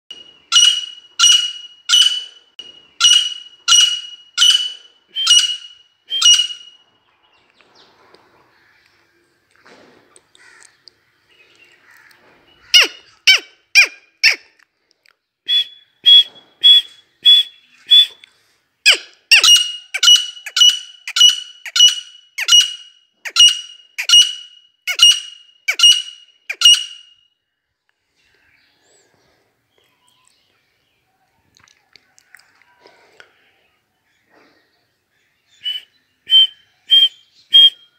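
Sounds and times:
bird shrill whistled calls: 0.1 - 6.8, 12.7 - 14.4, 18.9 - 27.2, 35.5 - 37.9.

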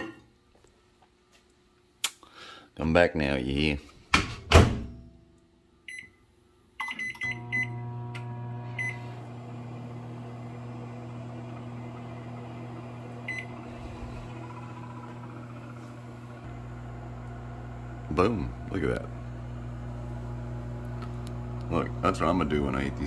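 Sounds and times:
microwave keypad beeps: 5.9 - 6.2, 6.8 - 7.8, 8.8 - 9.1, 13.3 - 13.6
microwave oven humming: 7.2 - 23.0.

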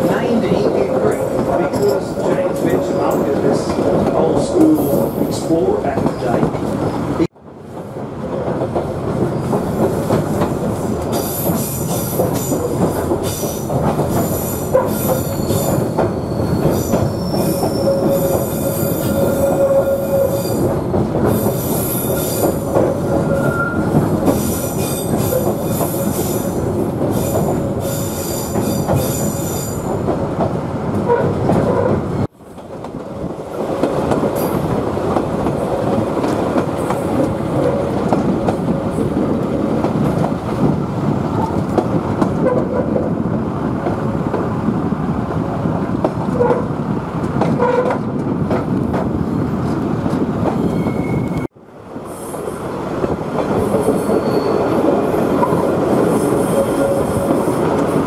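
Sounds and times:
rumble and clicking of wheels on track: 0.0 - 58.0
train wheels squealing on rails: 11.1 - 20.7, 21.3 - 29.9, 50.5 - 51.5, 52.1 - 52.7, 53.6 - 57.9.

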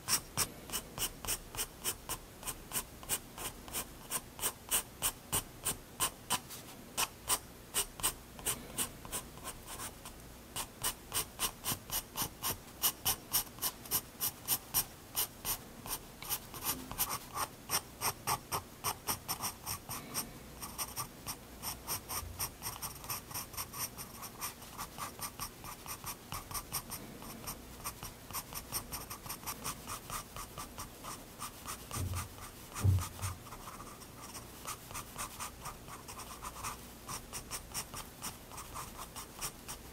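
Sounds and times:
pencil scratching on paper: 10.6 - 19.9, 20.6 - 39.8.

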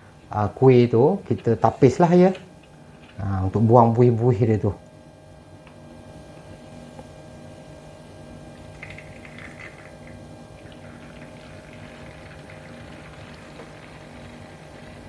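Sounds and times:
steady low hum: 0.0 - 15.0
bubbly crackling of foam: 8.8 - 15.0.

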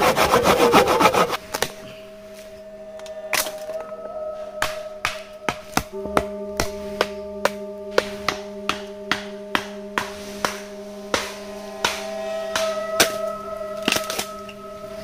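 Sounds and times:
sustained drone tones: 0.0 - 15.0.

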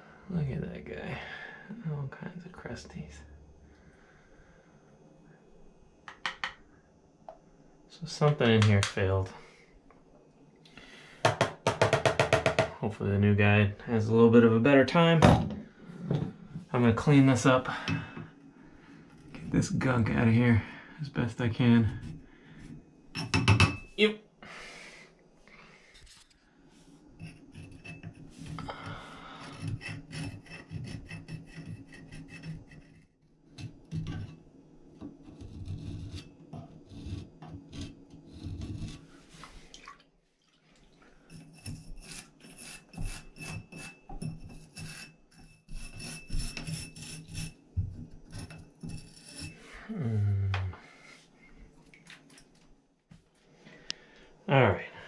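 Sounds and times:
scraping and scrubbing: 27.2 - 34.4, 35.2 - 39.8, 41.2 - 49.9.

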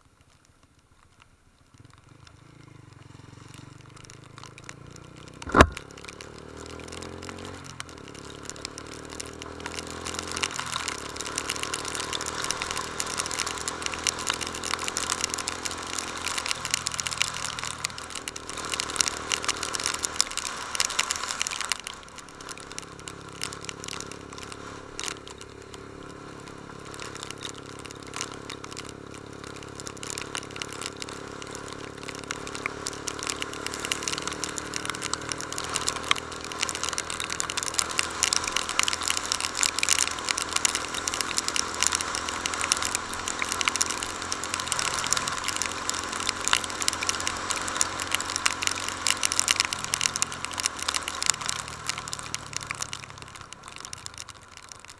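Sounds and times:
dense crackle: 0.0 - 54.9
motorcycle engine running: 1.7 - 54.9.

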